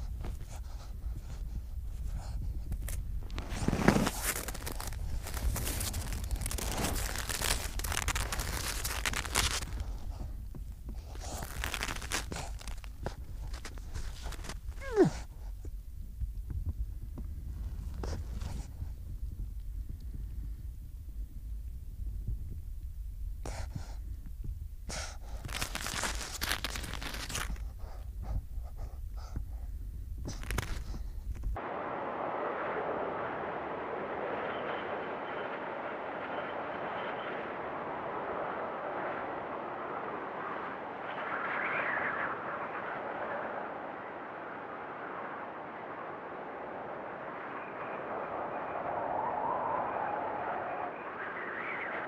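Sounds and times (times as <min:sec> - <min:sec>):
seal pup breathing and sniffing: 0:00.0 - 0:15.8, 0:23.4 - 0:31.6
low rumble: 0:00.0 - 0:52.0
steady hiss: 0:00.0 - 0:52.0
snow crunching: 0:02.9 - 0:15.1, 0:25.5 - 0:27.7.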